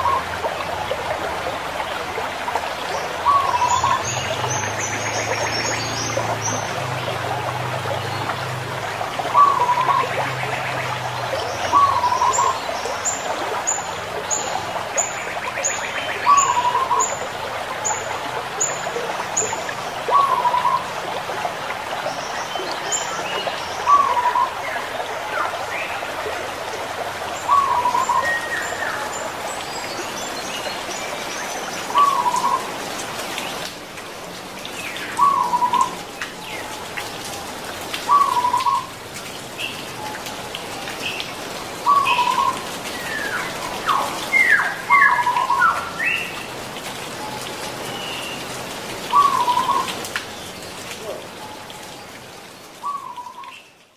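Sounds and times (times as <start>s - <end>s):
steady rain-like hiss: 0.0s - 53.9s
small birds chirping: 38.0s - 53.9s.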